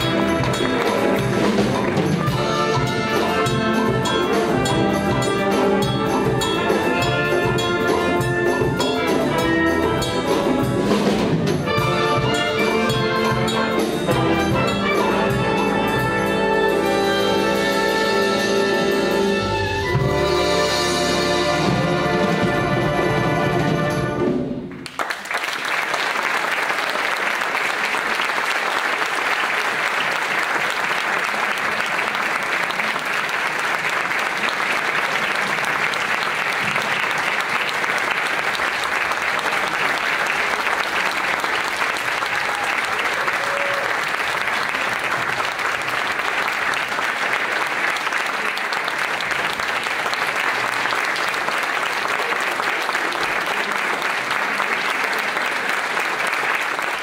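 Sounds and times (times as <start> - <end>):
audience applauding: 0.0 - 2.7, 24.7 - 57.0.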